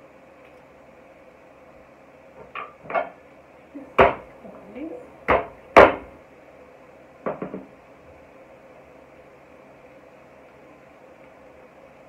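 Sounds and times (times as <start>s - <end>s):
knocks on a tabletop: 7.2s - 7.7s.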